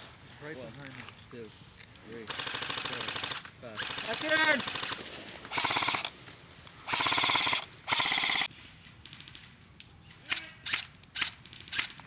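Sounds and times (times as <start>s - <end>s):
airsoft rifle bursts: 2.3s - 6.1s, 6.9s - 8.5s.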